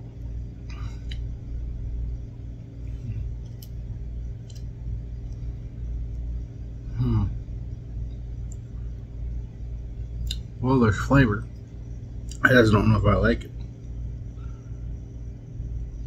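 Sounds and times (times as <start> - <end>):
steady low hum: 0.0 - 16.0
man's low hmm: 6.8 - 7.6.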